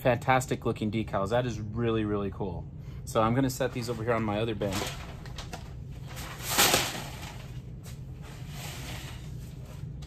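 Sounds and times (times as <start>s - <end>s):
paper sheets rustling: 3.6s - 9.8s.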